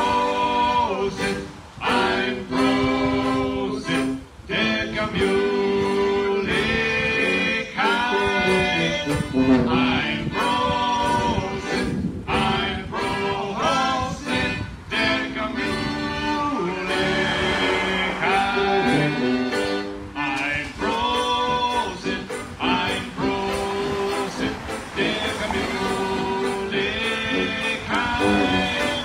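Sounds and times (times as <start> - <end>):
accordion: 0.0 - 29.0
tuba: 0.0 - 29.0
banjo: 5.3 - 16.1, 16.9 - 29.0.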